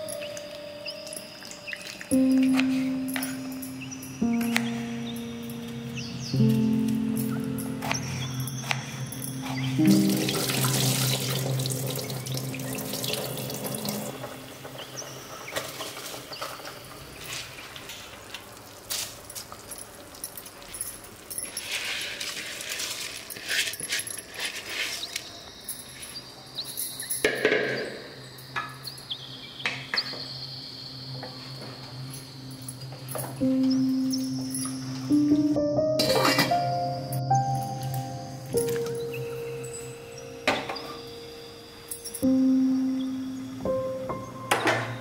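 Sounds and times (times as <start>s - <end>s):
water poured into metal pot: 10.1s - 14.2s.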